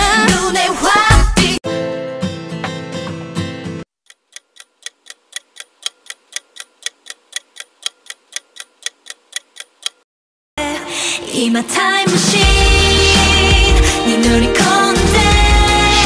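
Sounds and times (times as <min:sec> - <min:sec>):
pop music: 0:00.0 - 0:01.7, 0:10.6 - 0:16.0
ticking clock countdown timer: 0:04.1 - 0:10.0.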